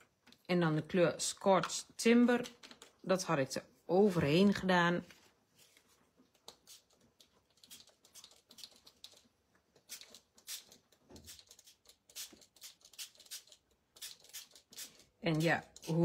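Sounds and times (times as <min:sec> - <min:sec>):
spray bottle misting water: 0:09.8 - 0:16.0.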